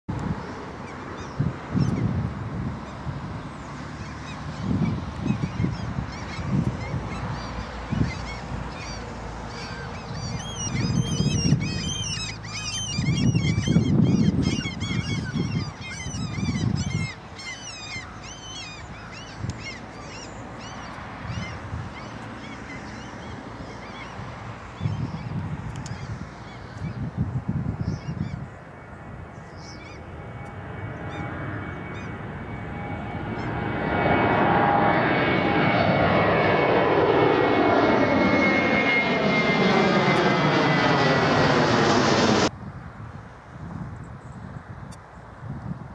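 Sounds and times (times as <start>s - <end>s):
jet engines rumbling: 0.1s - 45.9s
wind gusts on microphone: 0.1s - 45.9s
flock of birds calling: 4.0s - 27.1s.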